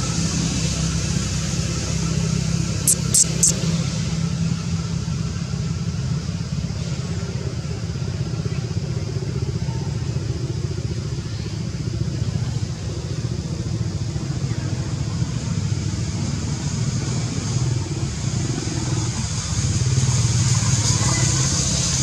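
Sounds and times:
pulsing engine rumble: 0.0 - 22.0
faint high hiss: 2.9 - 3.6.

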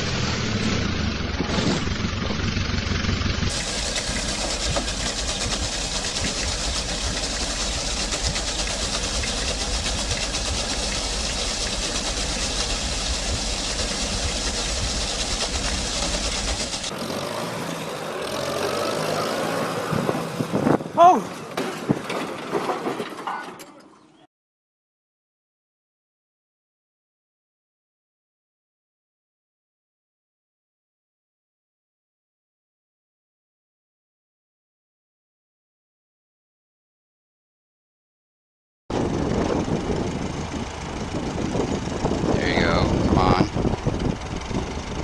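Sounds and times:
tractor engine running: 0.0 - 23.3, 38.9 - 45.0
water splashing: 3.5 - 16.9.

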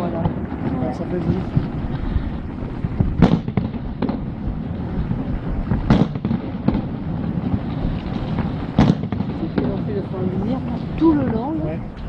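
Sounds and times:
smaller firework bangs: 0.0 - 11.8
low rumble: 0.0 - 12.0
firework shell bursts: 1.4 - 5.0.

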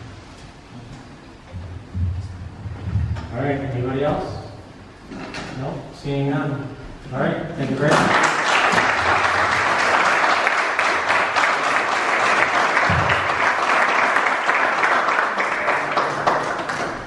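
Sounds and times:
audience applauding: 7.9 - 17.0.

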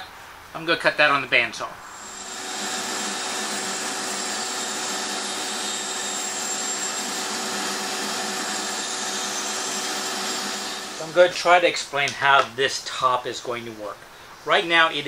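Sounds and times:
bandsaw cutting wood: 1.9 - 11.4
dust extractor whirring: 1.9 - 11.4.

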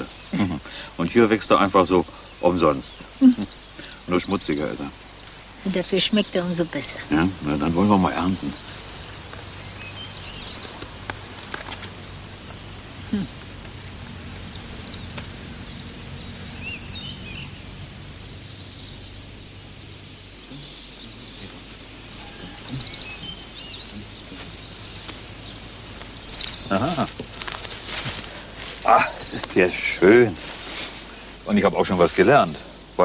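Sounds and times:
faint bird chirps: 0.0 - 33.0
steady low background noise: 0.0 - 33.0
bird trilled call: 18.6 - 27.1.

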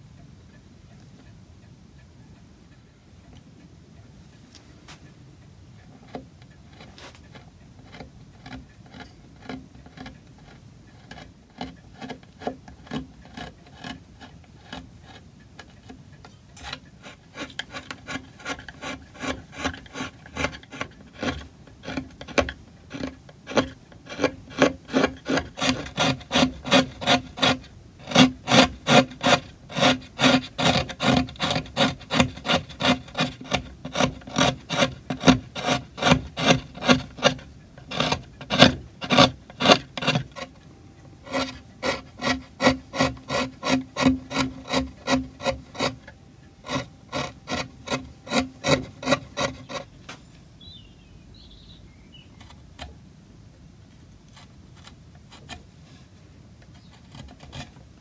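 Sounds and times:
carving gouge slicing wood: 6.0 - 16.0, 16.6 - 40.6, 41.2 - 49.9, 56.8 - 57.8.

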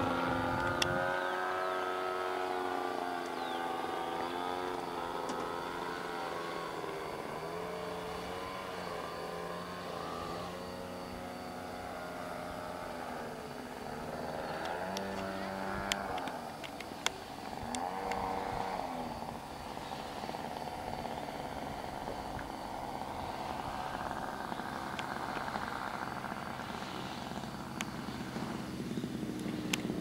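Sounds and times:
propeller plane engine overhead: 0.0 - 30.0
sharp clicks: 29.3 - 29.9.

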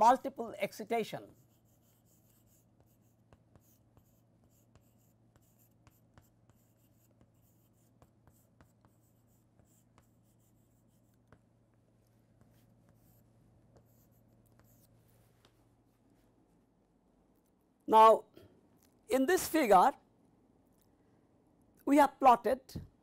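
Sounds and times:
chalk scratching on chalkboard: 1.2 - 11.5, 12.1 - 15.5.

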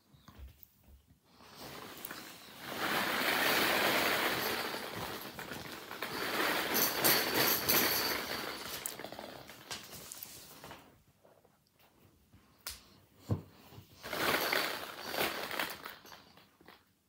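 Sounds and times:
plastic balls rattling and clattering: 1.6 - 10.3, 14.0 - 16.9.

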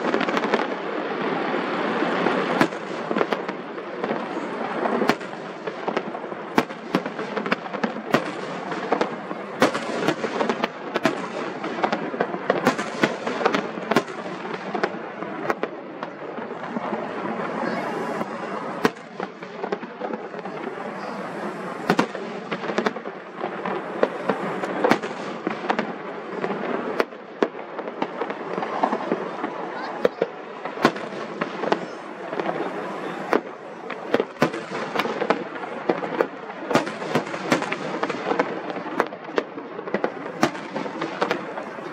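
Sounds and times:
fireworks crackling and banging: 0.0 - 41.9.

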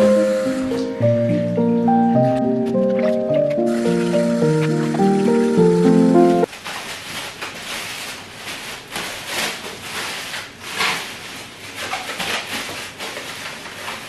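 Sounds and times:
plastic bag rustling: 2.9 - 14.0.

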